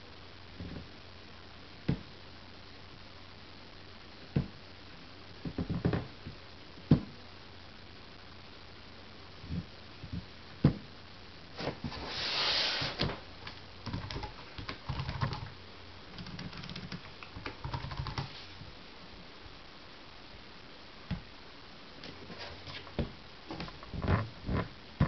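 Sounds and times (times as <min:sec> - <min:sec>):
keyboard typing: 0:13.8 - 0:15.5, 0:16.1 - 0:18.3.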